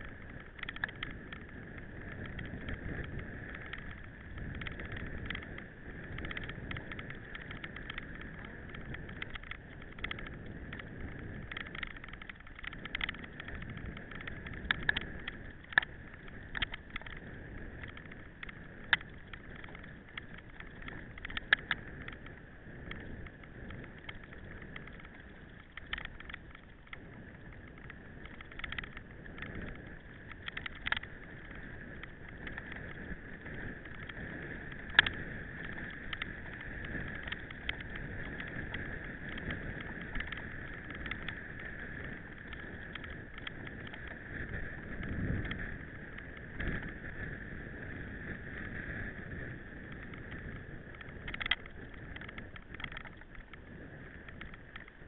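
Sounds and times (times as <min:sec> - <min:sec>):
bike clicking and knocking: 0:00.0 - 0:17.2.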